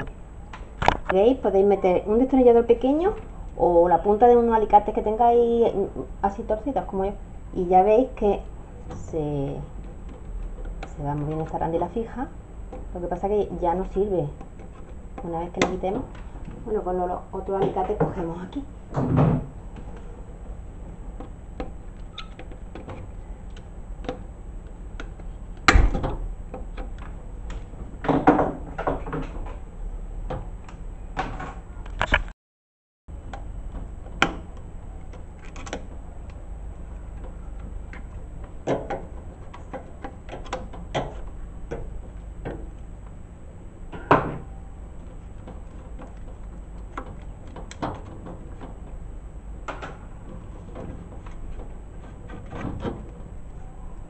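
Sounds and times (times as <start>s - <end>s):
tools clicking and scraping on plastic: 9.7s - 11.6s, 14.3s - 16.6s, 33.2s - 42.9s, 45.0s - 53.3s.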